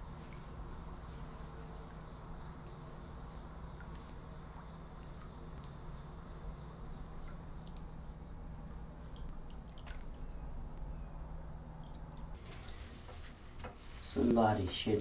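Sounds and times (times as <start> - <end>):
steady low hum: 0.0 - 15.0
faint ticks: 7.2 - 7.9.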